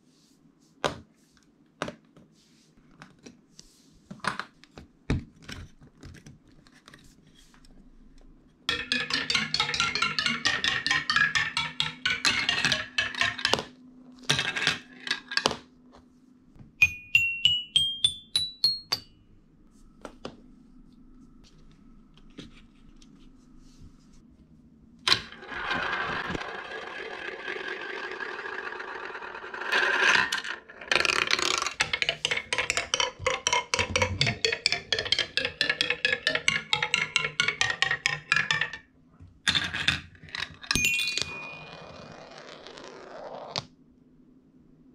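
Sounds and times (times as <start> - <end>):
toy xylophone rising notes: 8.7 - 13.4, 40.8 - 42.0
marble rolling on plastic track: 8.7 - 15.6, 25.1 - 38.9, 39.5 - 43.6
marbles clattering on wood: 8.7 - 15.7, 25.1 - 38.9, 39.5 - 43.6.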